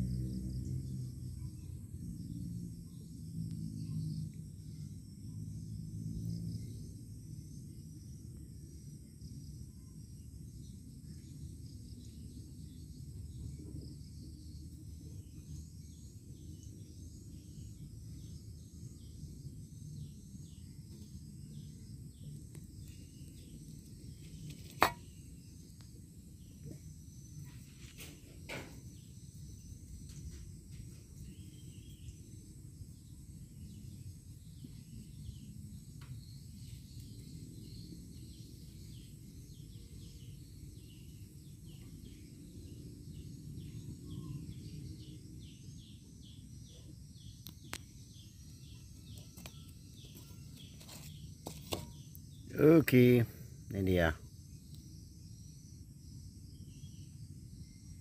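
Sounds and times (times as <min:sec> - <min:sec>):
low outdoor rumble: 0:00.0 - 0:08.0.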